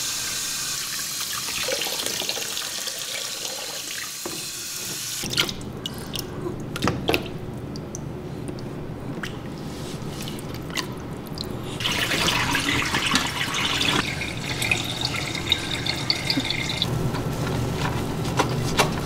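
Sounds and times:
water dripping and splashing: 0:05.2 - 0:16.9.

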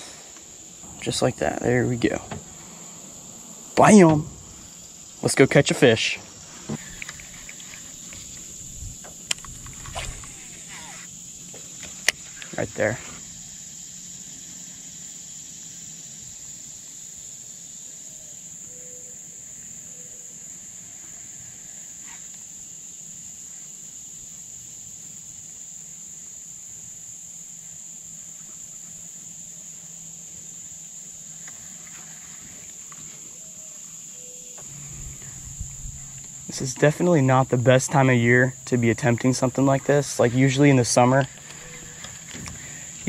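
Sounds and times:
high-pitched insect drone: 0:00.0 - 0:43.0
faint short low notes: 0:34.6 - 0:36.9.

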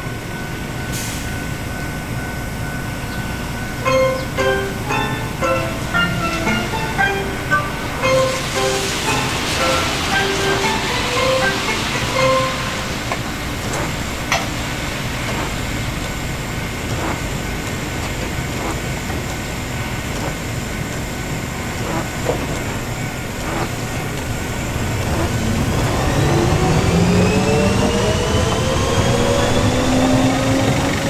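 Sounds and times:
tram humming: 0:00.0 - 0:31.0
tram motor whine rising: 0:00.0 - 0:31.0.

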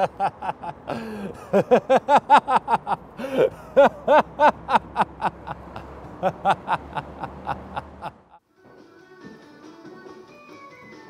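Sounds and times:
man laughing: 0:00.0 - 0:08.4
gasping in-breath: 0:00.9 - 0:01.5, 0:03.2 - 0:03.8.

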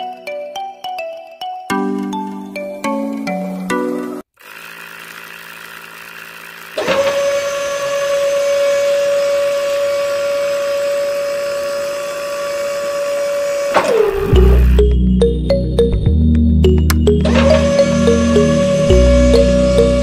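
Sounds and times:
small motor whining: 0:04.3 - 0:14.8, 0:17.2 - 0:20.0.

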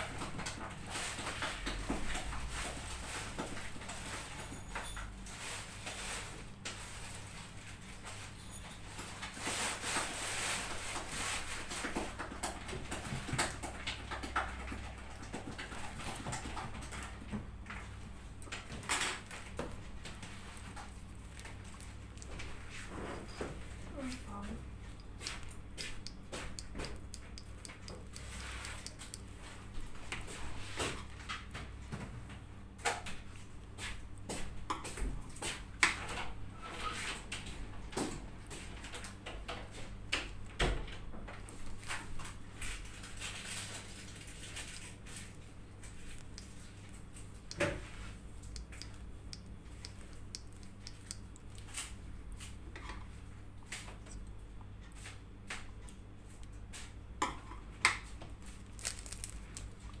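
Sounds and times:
steady low hum: 0:12.6 - 1:00.0.

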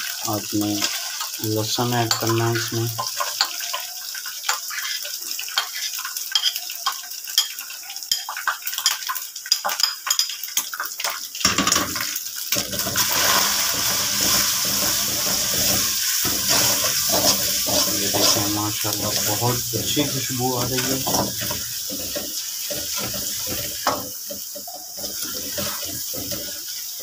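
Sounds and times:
garlic sizzling in hot oil: 0:00.0 - 0:27.0
light frying crackle: 0:00.0 - 0:27.0
steel spoon scraping a plate: 0:24.7 - 0:26.7.

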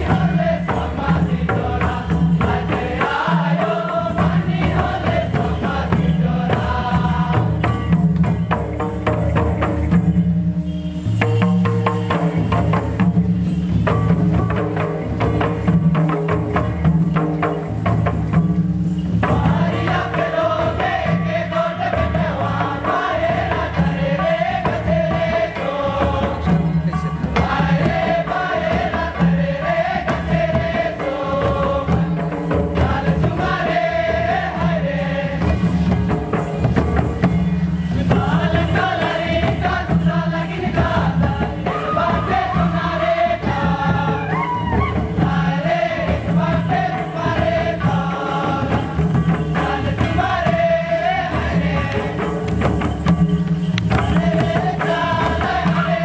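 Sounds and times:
group singing in unison: 0:00.0 - 0:08.6, 0:19.2 - 0:36.8, 0:37.9 - 0:53.1, 0:53.8 - 0:56.0
hand-played barrel drums: 0:00.0 - 0:56.0.

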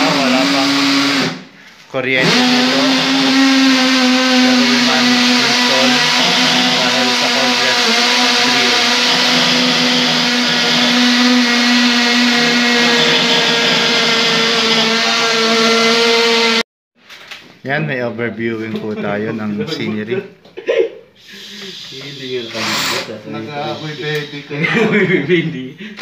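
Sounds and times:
cordless drill whining: 0:00.0 - 0:01.5, 0:02.2 - 0:16.6, 0:21.6 - 0:24.4.

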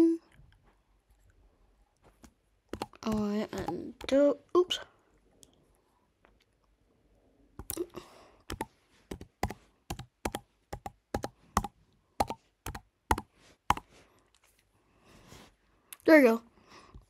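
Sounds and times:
keyboard typing clicks: 0:02.8 - 0:04.2, 0:07.6 - 0:07.8, 0:08.5 - 0:13.8.

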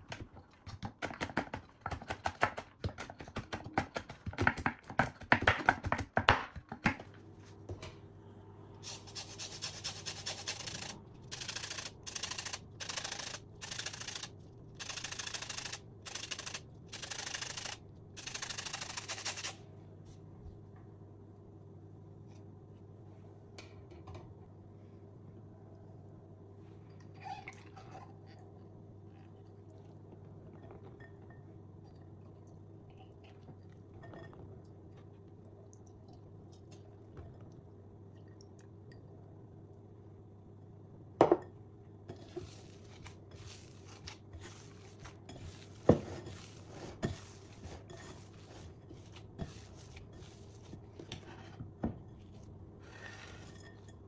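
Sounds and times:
faint scraping in bowl: 0:42.1 - 0:51.6, 0:52.2 - 0:53.9
hands kneading dough: 0:42.2 - 0:53.7.

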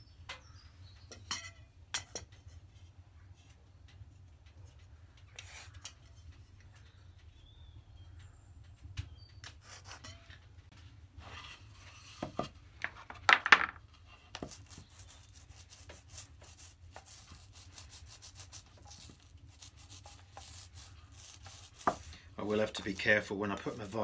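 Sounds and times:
foam roller rubbing glue: 0:14.1 - 0:24.0.

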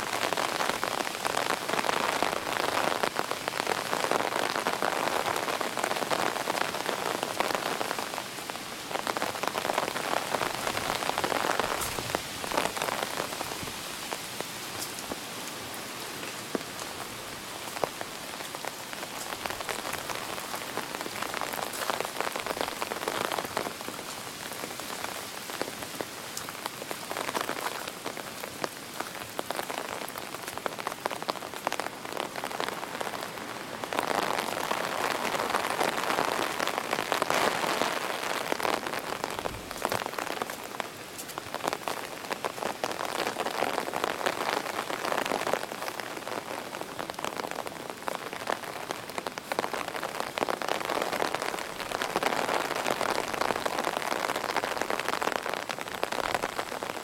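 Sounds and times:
heavy rain hissing on grass: 0:00.0 - 0:57.0
wind gusts: 0:08.6 - 0:28.3, 0:32.4 - 0:41.2.

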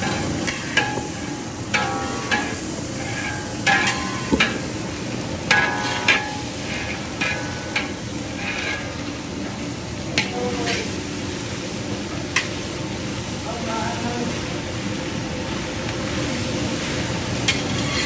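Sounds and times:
metal paddle scraping steel wok: 0:00.0 - 0:04.8, 0:05.5 - 0:09.1, 0:17.4 - 0:18.0
frying hiss: 0:00.0 - 0:18.0.

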